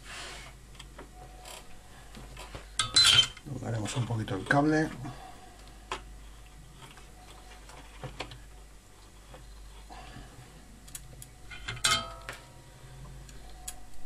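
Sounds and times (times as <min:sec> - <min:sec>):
clicks of wires being handled: 0:05.6 - 0:09.9.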